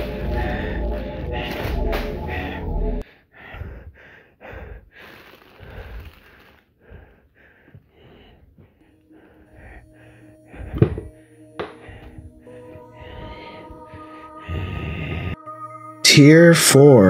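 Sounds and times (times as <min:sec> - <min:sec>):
background music: 0:00.0 - 0:03.0, 0:08.8 - 0:17.0
person breathing and sniffing: 0:00.0 - 0:15.4.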